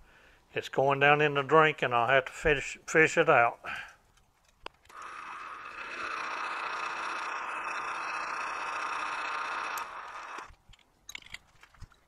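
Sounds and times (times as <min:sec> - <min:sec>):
metal lathe cutting bar: 0:04.9 - 0:10.5.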